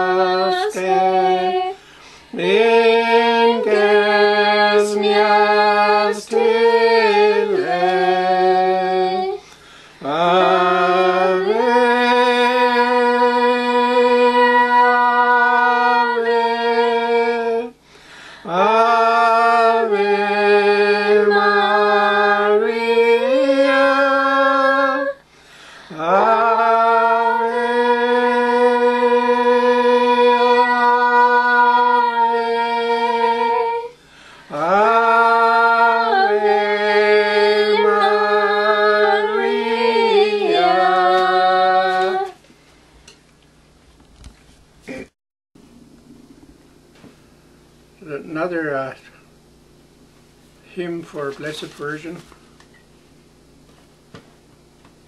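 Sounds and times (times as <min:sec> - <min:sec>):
unaccompanied hymn singing: 0:00.0 - 0:42.5.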